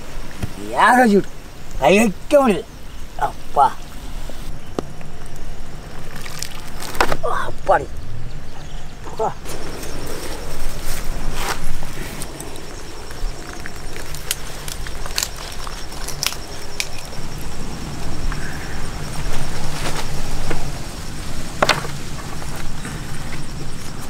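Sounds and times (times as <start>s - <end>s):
leaf wrapping rustling and crackling: 4.9s - 7.6s, 9.5s - 24.0s
steady low hum: 7.9s - 24.0s.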